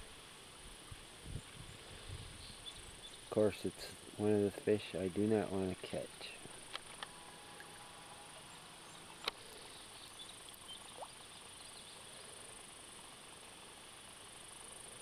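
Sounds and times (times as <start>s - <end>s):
faint high-pitched hiss: 0.0s - 15.0s
faint chirp: 8.4s - 12.6s.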